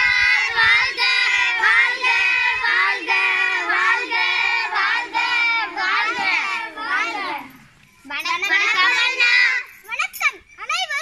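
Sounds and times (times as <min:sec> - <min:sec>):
children singing: 0:00.0 - 0:07.5, 0:08.8 - 0:09.7.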